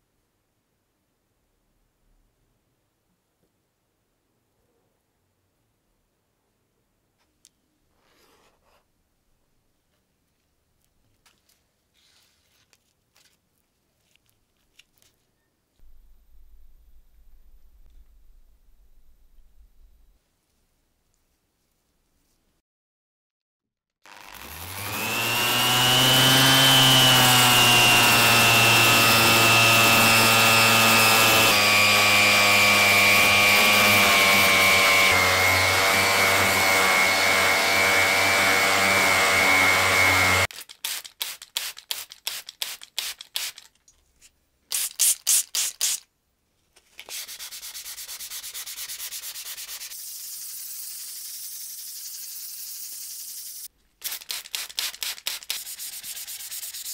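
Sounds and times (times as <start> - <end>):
power sander running: 24.1 - 40.5
hand rubbing strokes: 46.8 - 56.9.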